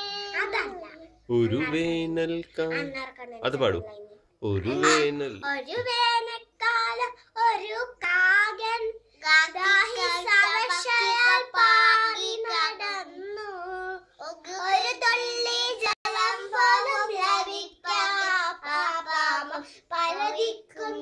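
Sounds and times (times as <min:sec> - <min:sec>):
children singing: 0:09.6 - 0:21.0.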